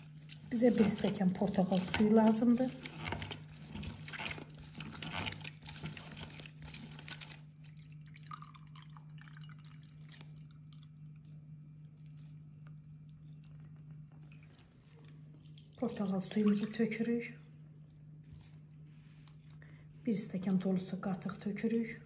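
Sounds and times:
orange squishing on juicer: 0.0s - 17.4s
juice trickling into glass: 4.0s - 12.4s.

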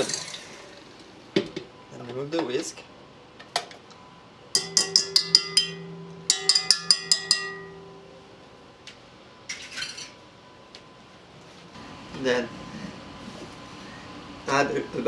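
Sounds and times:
whisk tapping metal bowl: 4.6s - 8.4s
metal bowl ringing: 4.6s - 8.6s.

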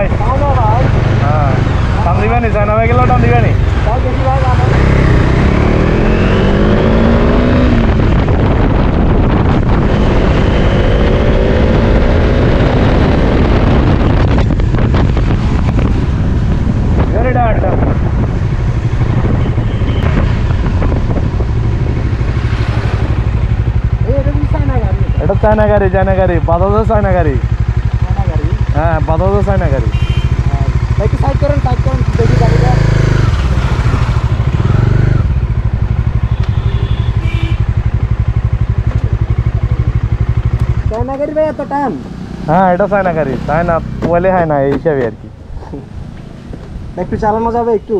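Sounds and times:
motorcycle engine running at low revs: 0.0s - 45.1s
motorcycle engine idling: 23.1s - 42.5s.

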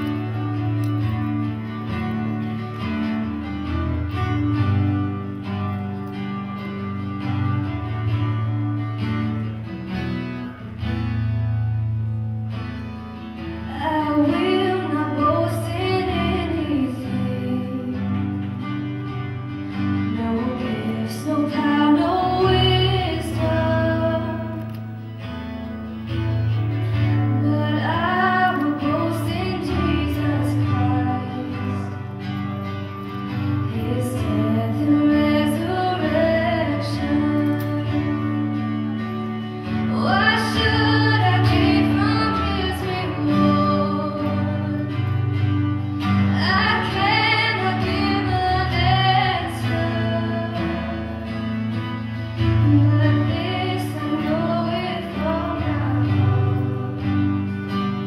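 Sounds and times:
acoustic guitar: 0.0s - 58.0s
woman singing: 13.6s - 18.8s, 19.9s - 24.9s, 27.1s - 32.5s, 33.3s - 51.8s, 52.4s - 58.0s.

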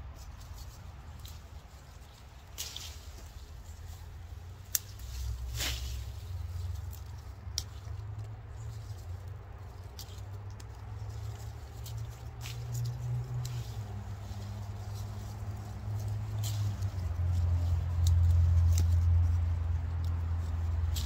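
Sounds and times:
rustles: 0.0s - 21.0s
steady low rumble: 0.0s - 21.0s.

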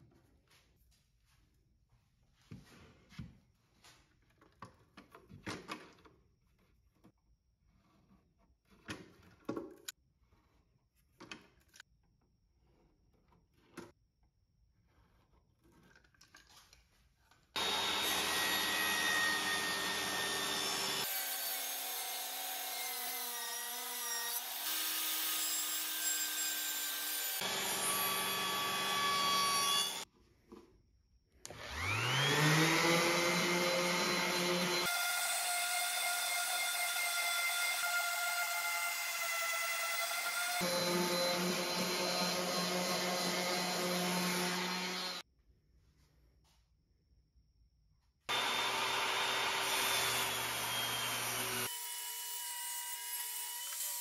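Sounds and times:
sander motor whining: 17.6s - 21.1s, 27.3s - 30.0s, 31.5s - 34.9s, 40.4s - 45.2s, 48.3s - 51.7s
table saw cutting wood: 17.6s - 30.1s, 31.5s - 45.2s, 48.3s - 54.0s.

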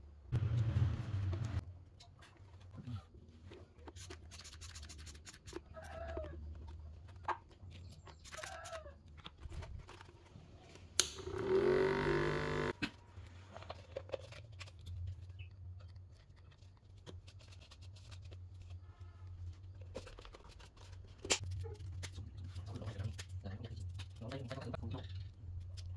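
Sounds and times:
small electric motor whirring: 11.2s - 12.8s.

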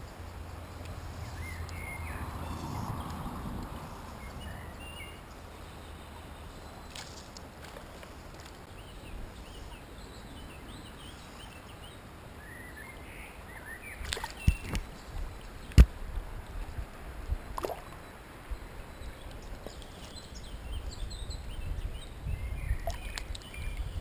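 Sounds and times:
small birds chirping: 0.0s - 15.9s, 17.3s - 24.0s
water splashing and sloshing: 14.0s - 18.5s, 22.7s - 24.0s.

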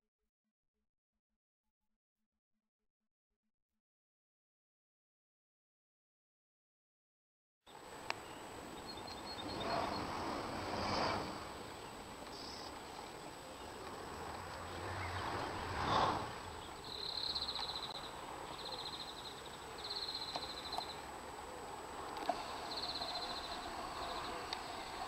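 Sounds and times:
bird singing a fast trill: 7.7s - 10.2s, 16.6s - 21.0s, 22.6s - 24.4s.

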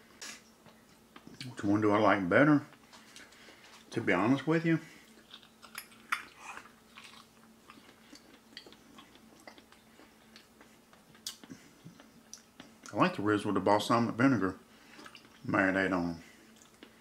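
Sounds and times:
person chewing with clicks: 5.0s - 13.0s, 15.0s - 15.5s, 16.5s - 17.0s.

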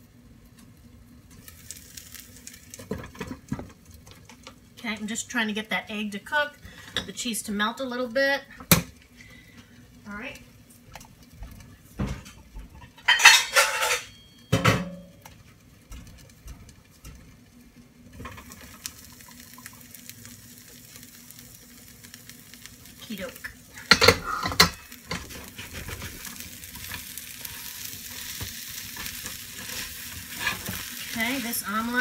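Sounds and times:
omelette sizzling in a pan: 0.0s - 5.9s, 15.0s - 32.0s
pan lids clattering: 12.1s - 15.1s, 23.9s - 26.2s
spatula scraping under omelette: 24.1s - 31.8s.

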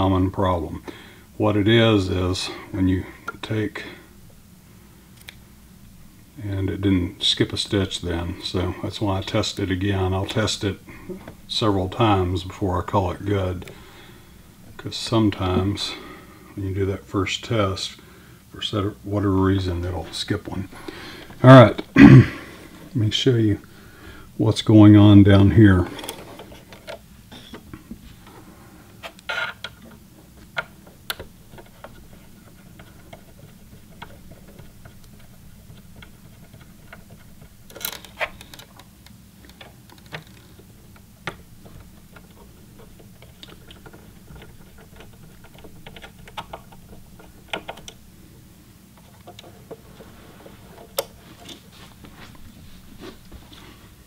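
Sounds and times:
steady low hum: 0.0s - 54.0s
screwdriver and metal parts clicking: 33.9s - 38.8s.

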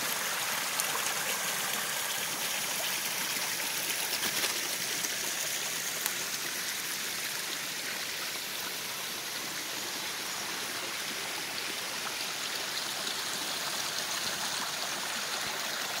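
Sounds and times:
mountain stream flowing: 0.0s - 16.0s.

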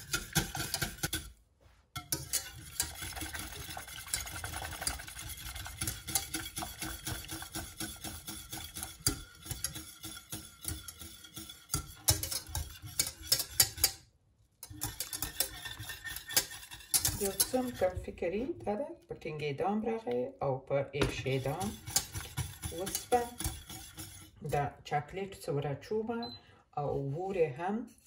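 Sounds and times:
whisk clicking against metal pot: 0.0s - 1.4s, 2.0s - 14.0s, 14.6s - 18.1s, 21.2s - 24.5s.

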